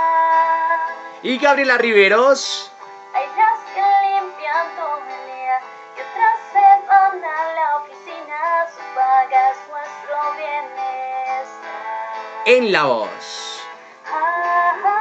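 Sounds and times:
woman singing slow song: 0.0s - 1.0s, 3.2s - 12.3s, 14.0s - 15.0s
acoustic guitar: 0.0s - 15.0s.

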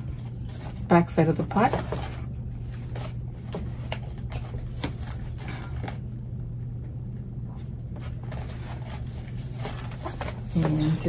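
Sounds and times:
low hum: 0.0s - 11.0s.

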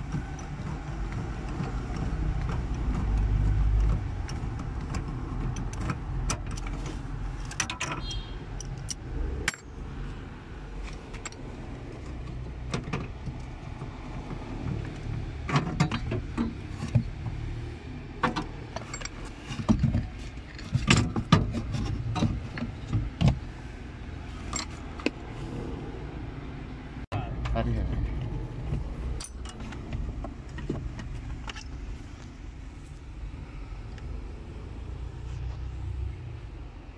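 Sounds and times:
metallic clicks and knocks: 0.0s - 9.7s, 10.8s - 17.4s, 18.2s - 23.4s, 27.4s - 32.4s.

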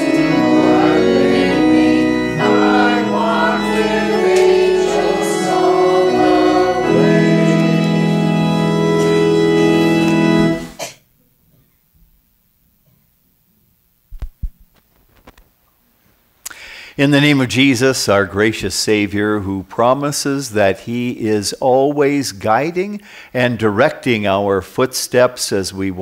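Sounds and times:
church organ: 0.0s - 10.8s, 17.0s - 26.0s
voices singing a hymn: 0.0s - 10.8s.

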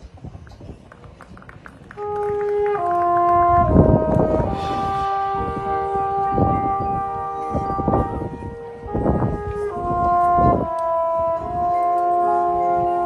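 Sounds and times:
marching band playing: 2.0s - 13.0s.

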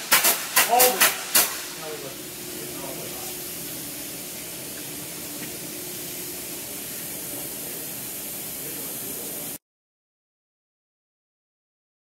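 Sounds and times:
compressed air hissing: 0.0s - 9.6s.

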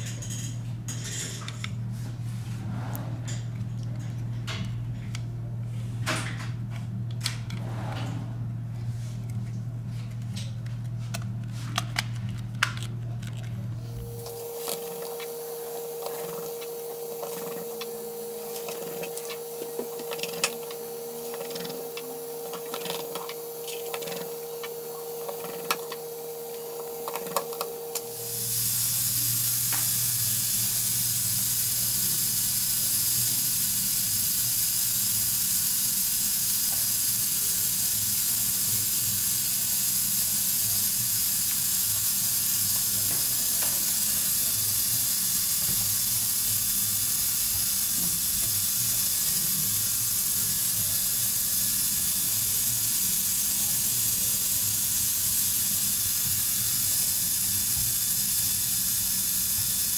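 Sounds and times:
loud high-pitched hiss: 13.9s - 59.9s.

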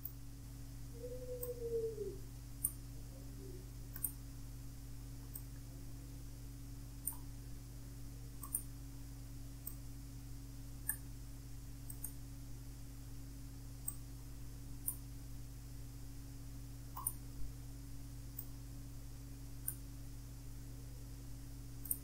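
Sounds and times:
low electrical hum: 0.0s - 22.0s
computer mouse clicking: 8.4s - 8.7s, 17.0s - 17.2s.

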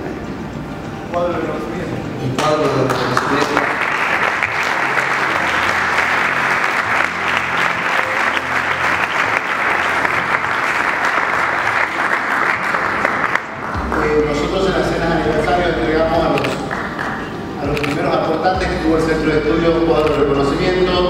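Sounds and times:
audience applause: 2.8s - 14.5s, 16.6s - 17.4s.

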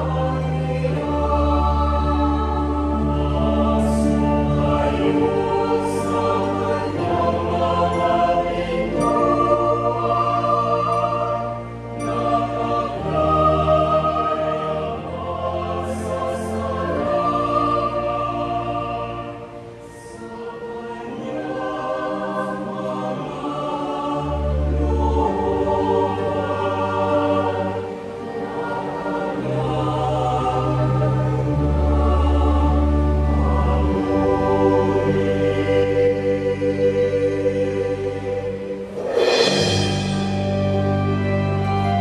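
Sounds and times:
choir singing in harmony: 0.0s - 42.0s
electronic keyboards: 24.3s - 42.0s.

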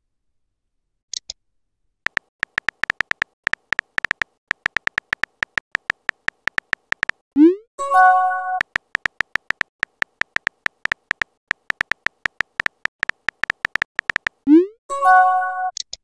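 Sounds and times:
sharp high ticks: 2.1s - 7.2s, 8.6s - 14.5s
synthetic keyboard typing clicks: 2.1s - 7.2s, 8.5s - 14.6s.

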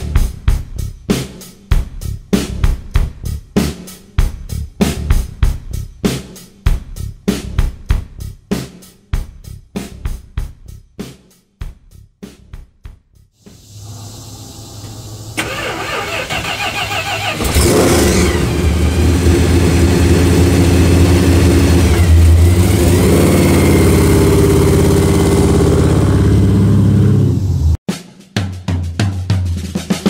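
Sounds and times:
car engine starting and revving: 13.6s - 27.8s.

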